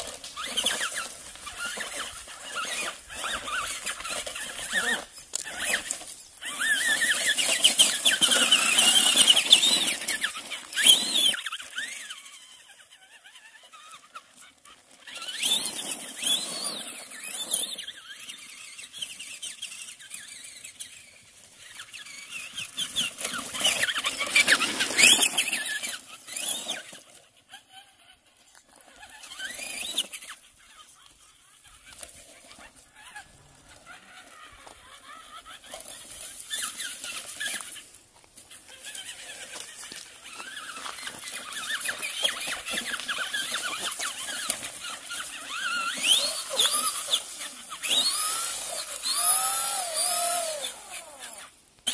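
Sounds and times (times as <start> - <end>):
electric motor whining: 0.0 - 14.2, 38.7 - 51.9
tyres churning on gravel: 0.0 - 51.9.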